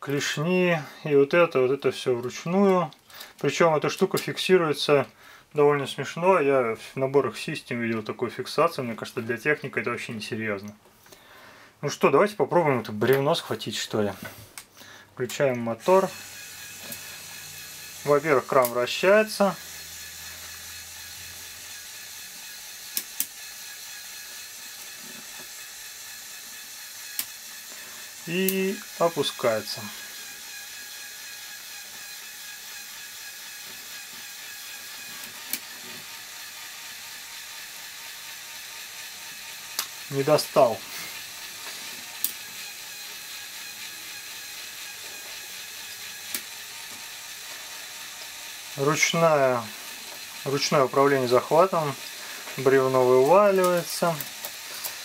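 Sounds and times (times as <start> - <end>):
electric motor whirring: 15.8 - 55.0.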